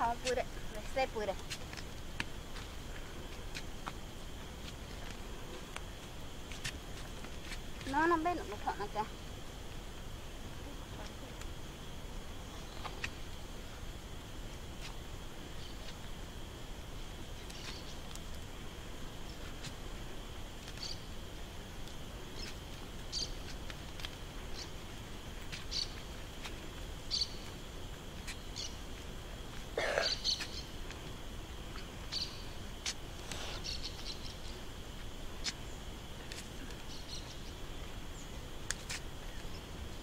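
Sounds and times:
high-pitched insect drone: 0:00.0 - 0:40.0
bird chirps: 0:23.1 - 0:23.4, 0:27.1 - 0:27.5, 0:30.0 - 0:30.8, 0:31.7 - 0:32.5.

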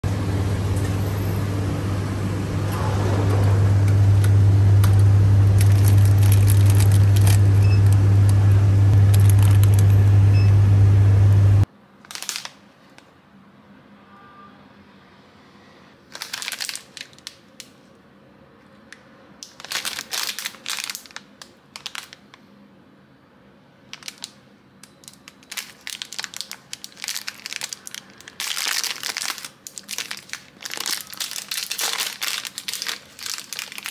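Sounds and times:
store hum and din: 0:00.0 - 0:33.9
plastic wrappers crinkling: 0:04.8 - 0:08.0, 0:08.9 - 0:10.0, 0:12.0 - 0:13.0, 0:16.1 - 0:17.8, 0:19.4 - 0:22.4, 0:23.9 - 0:33.9.

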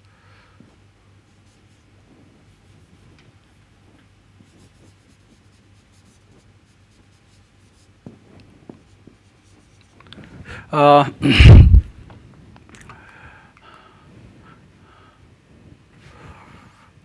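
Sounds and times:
marker scratching on whiteboard: 0:01.2 - 0:10.1.

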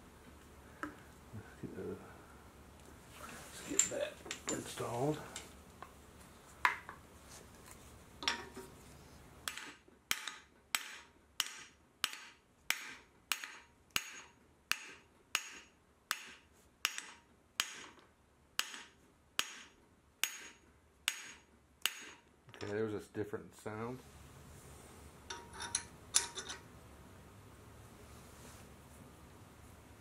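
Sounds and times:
hammer tapping metal: 0:09.4 - 0:18.0, 0:18.6 - 0:22.2.

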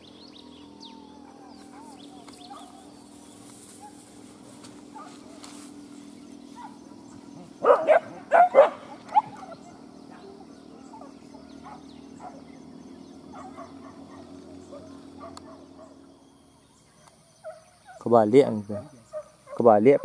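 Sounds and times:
dog barking: 0:01.7 - 0:02.8, 0:04.9 - 0:05.3, 0:06.6 - 0:06.9, 0:07.6 - 0:10.3, 0:10.9 - 0:12.5, 0:13.3 - 0:16.0, 0:17.4 - 0:18.0, 0:18.7 - 0:20.0.

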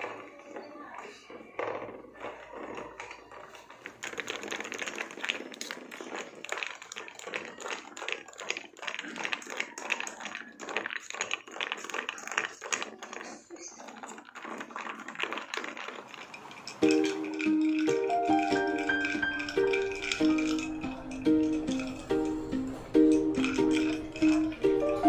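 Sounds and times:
spoon clinking against glass mug: 0:16.5 - 0:25.0.

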